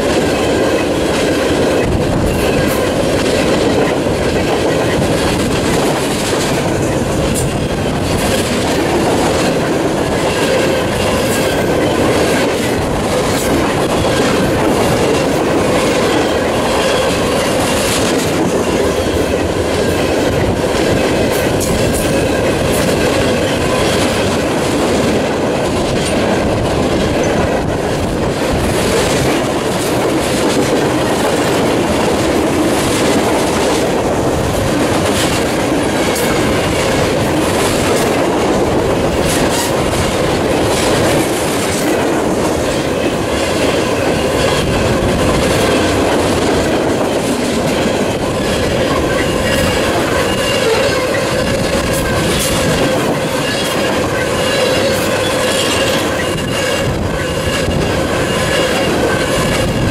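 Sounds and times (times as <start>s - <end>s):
train wheels rumbling on rails: 0.0s - 59.9s
high wheel squealing: 47.8s - 59.9s.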